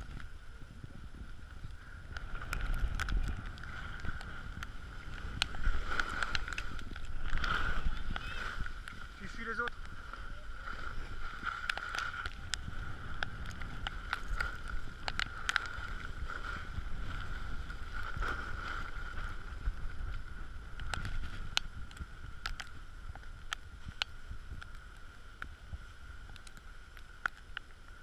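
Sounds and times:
wind rumbling on microphone: 0.0 - 28.0
skis hissing over packed snow: 2.1 - 21.5.

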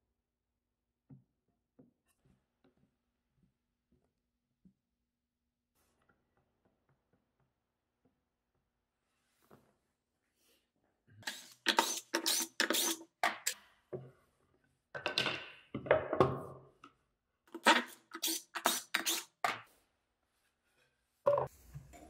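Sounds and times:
jig scraping on fence: 11.2 - 13.6, 17.6 - 19.5.

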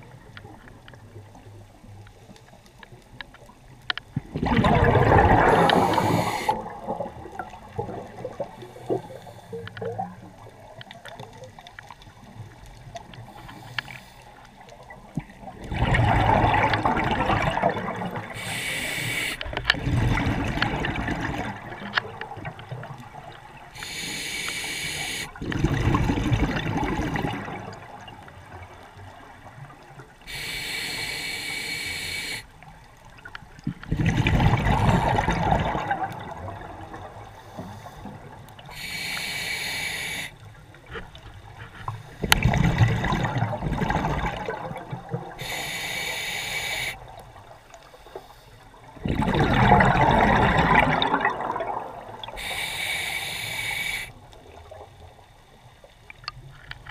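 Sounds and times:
exhaled air bubbling underwater: 0.0 - 56.8
diver inhaling through regulator: 5.4 - 6.7, 18.3 - 19.5, 23.8 - 25.4, 30.3 - 32.5, 37.3 - 40.4, 45.4 - 47.1, 52.3 - 54.2.

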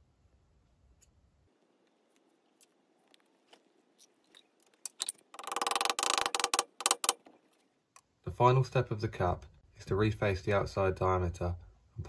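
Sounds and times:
metal pieces clicking: 4.0 - 7.2
metal scraping and rapid clicking: 4.9 - 7.3.

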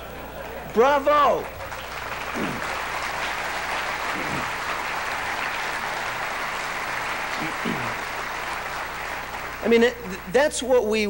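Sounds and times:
audience applauding: 0.0 - 10.7
faint voices: 2.3 - 2.8, 4.0 - 4.7, 7.3 - 8.1.

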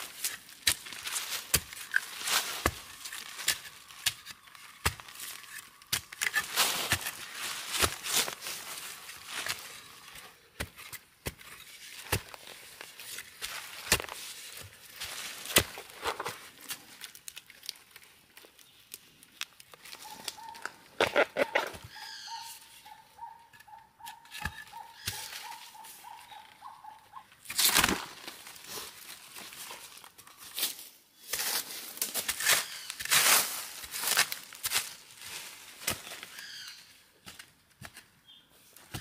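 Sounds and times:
earth and dry leaves crumbling: 0.0 - 10.3, 11.4 - 22.4, 27.5 - 36.8
digging tool striking soil: 0.0 - 16.8, 23.5 - 25.6, 38.8 - 39.0.

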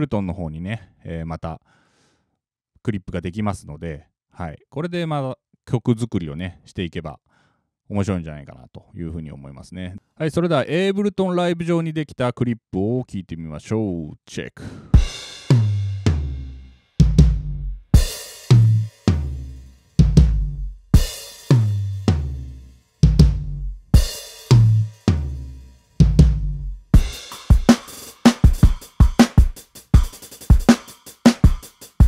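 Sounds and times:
heavy kick drum hits: 15.0 - 16.4, 17.0 - 19.4, 20.0 - 21.7, 23.0 - 25.3, 26.0 - 27.7
snare and cymbal hits: 15.0 - 32.0.

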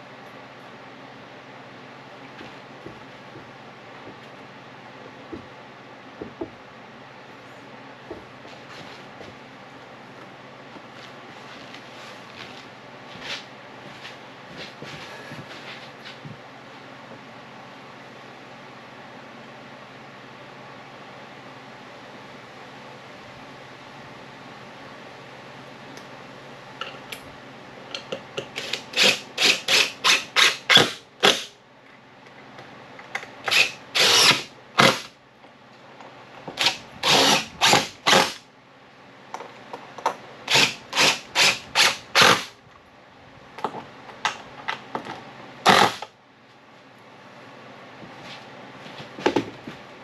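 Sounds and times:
power driver driving screws into wood: 28.6 - 31.5, 33.5 - 35.1, 36.6 - 38.4, 40.5 - 42.5, 45.7 - 46.1.

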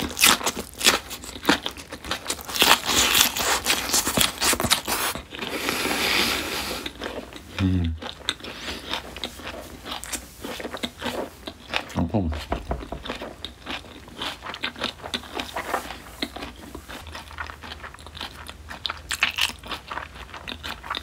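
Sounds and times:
crunchy chewing: 0.0 - 21.0
person humming mm: 7.5 - 8.0.

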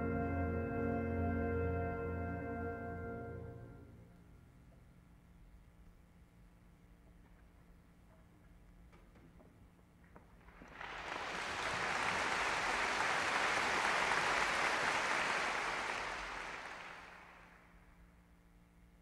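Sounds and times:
audience applauding: 10.4 - 17.7.

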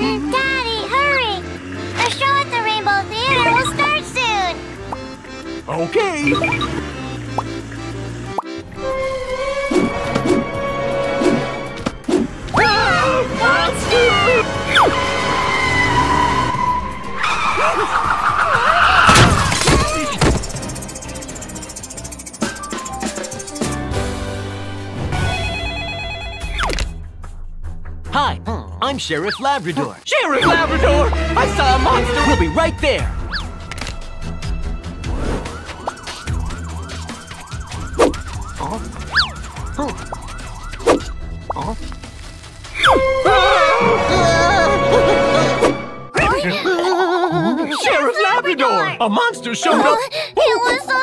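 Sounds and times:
cartoon car accelerating: 0.0 - 24.2, 35.0 - 42.0, 42.7 - 46.4
tyres skidding: 0.0 - 25.4, 29.0 - 46.7
background music: 0.0 - 51.0
car crash: 14.7 - 21.4
falling whistle effects: 35.4 - 41.1
cartoon police siren yelping: 35.6 - 41.1, 42.8 - 45.2.

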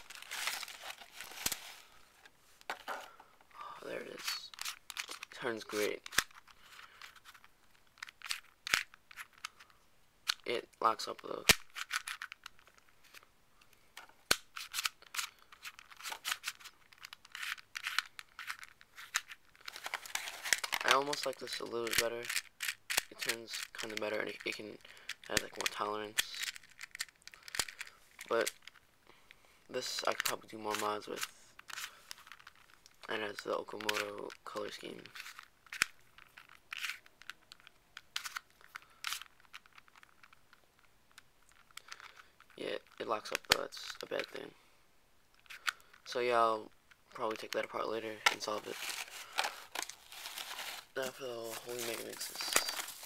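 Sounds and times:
puzzle scraping turns: 0.0 - 2.8, 14.6 - 28.8, 47.2 - 53.0
plastic puzzle clicking: 5.9 - 10.4, 11.4 - 28.8, 33.8 - 34.4, 35.0 - 43.6.

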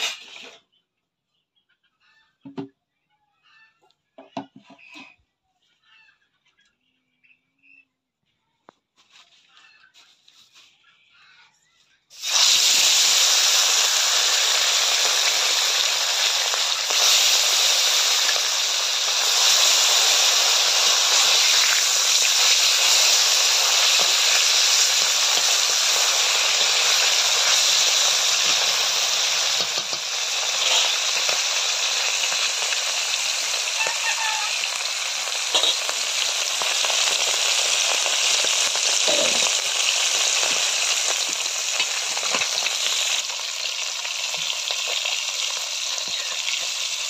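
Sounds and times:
fish sizzling in hot oil: 0.0 - 0.6, 12.1 - 47.0.

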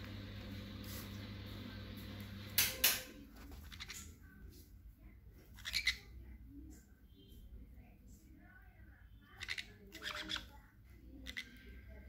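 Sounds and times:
steady low hum: 0.0 - 3.6
parrots squawking: 5.5 - 6.2, 9.3 - 10.6, 11.2 - 11.8.

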